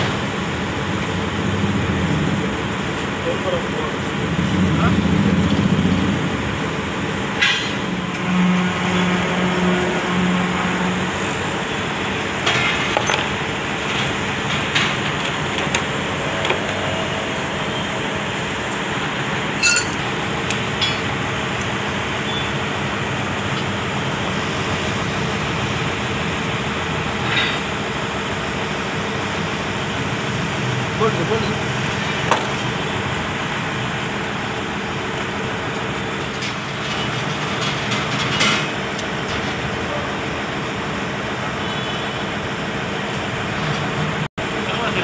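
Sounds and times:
heavy construction machinery running: 0:00.0 - 0:45.0.

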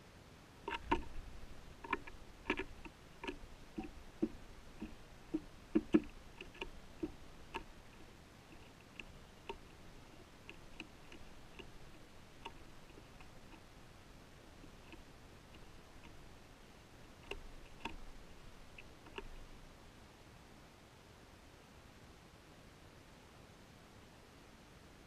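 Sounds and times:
light taps and clicks: 0:00.7 - 0:13.7, 0:14.5 - 0:16.5, 0:17.2 - 0:19.6.

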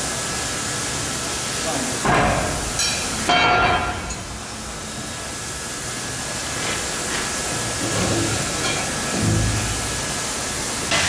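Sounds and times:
steel plate clanking: 0:07.8 - 0:10.2.

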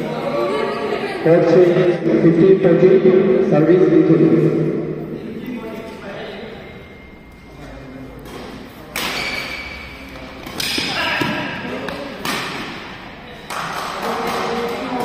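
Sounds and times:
voices: 0:00.0 - 0:15.0
rackets hitting shuttlecock: 0:08.2 - 0:15.0.

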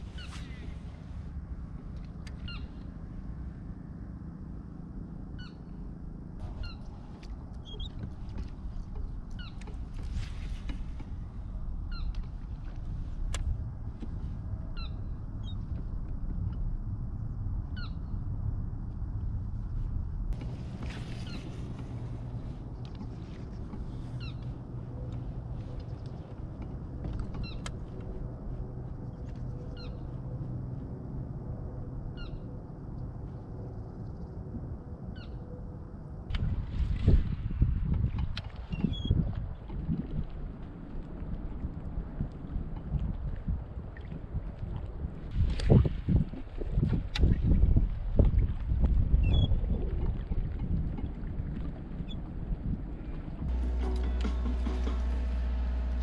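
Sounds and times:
steady low rumble: 0:00.0 - 0:56.0
bird calling: 0:02.4 - 0:02.8, 0:06.4 - 0:06.9, 0:27.2 - 0:28.0.

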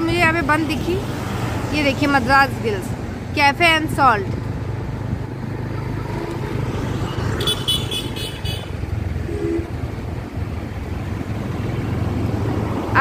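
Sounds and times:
traffic engine rumble: 0:00.0 - 0:13.0
high-pitched horn beeping: 0:07.4 - 0:09.9.

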